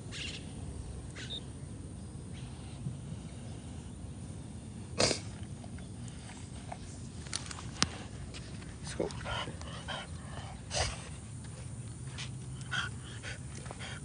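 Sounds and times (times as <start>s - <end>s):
dog snorting and sniffing: 4.9s - 14.0s.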